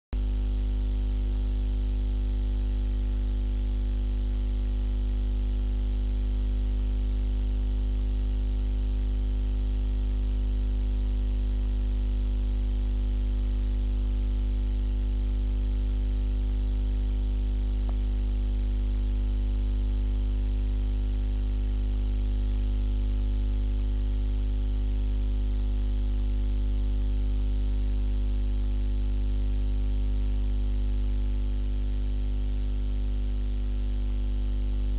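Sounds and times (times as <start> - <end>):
electrical mains hum: 16.3 - 21.8.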